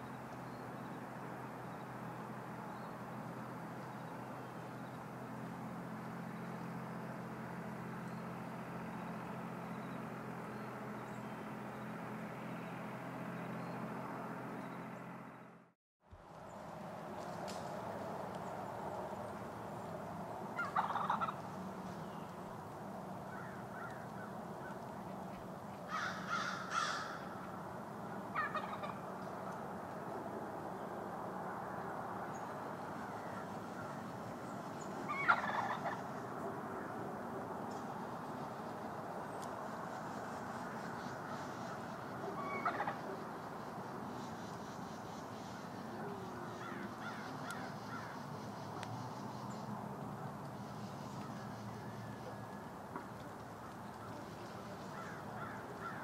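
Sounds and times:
turkey gobbling: 20.5 - 21.4, 28.3 - 29.0, 35.1 - 36.1, 42.2 - 43.4
faint short bird calls: 44.1 - 49.7, 53.6 - 56.0.

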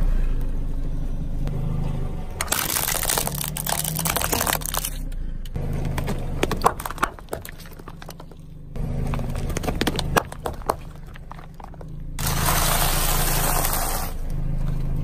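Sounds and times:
car engine running: 0.0 - 15.0
tyre crushing plastic: 2.4 - 5.0, 6.0 - 8.4.

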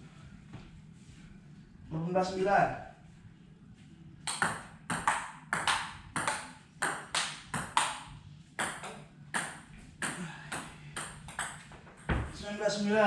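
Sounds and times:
table tennis ball clicking: 4.3 - 9.6.

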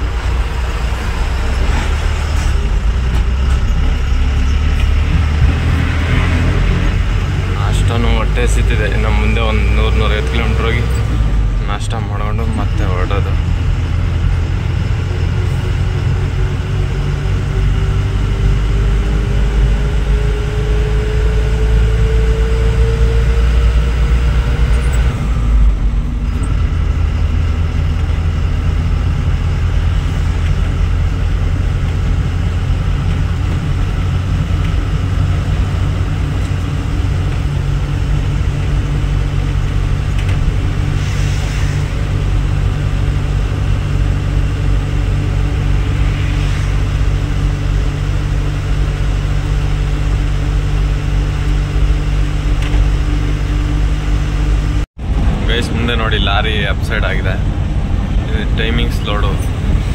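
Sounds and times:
diesel truck engine: 0.0 - 59.9
road noise: 0.0 - 59.9.

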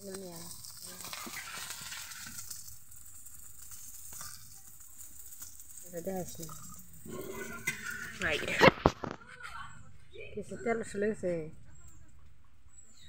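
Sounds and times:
metal spatula in pan: 0.0 - 8.9
fritters sizzling in oil: 0.0 - 9.2.

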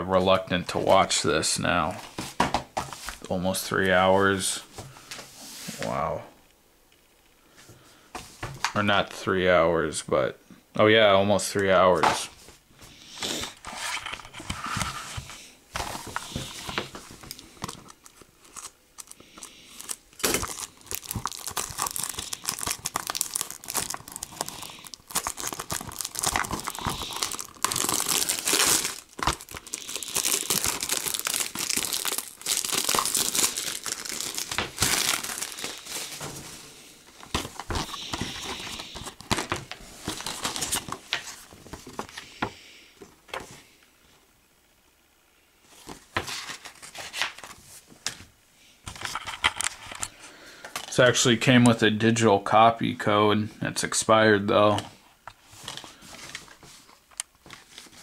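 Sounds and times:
plastic wrap crinkling and tearing: 15.8 - 42.2.

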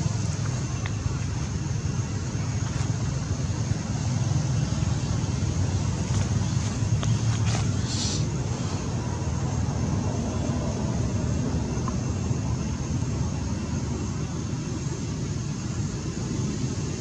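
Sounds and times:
faint hiss: 0.0 - 9.6.

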